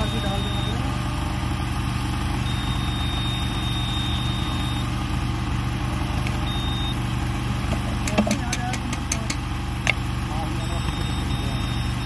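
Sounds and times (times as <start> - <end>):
faint high whine: 0.0 - 1.0, 2.4 - 4.9, 6.4 - 7.1
welding machine power unit drone: 0.0 - 12.0.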